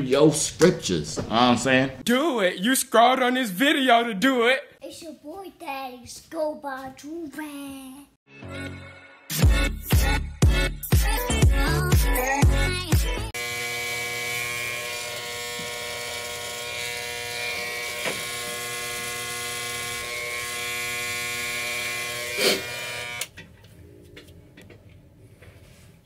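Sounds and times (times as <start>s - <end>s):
electric hair trimmer buzzing: 13.4s - 23.3s.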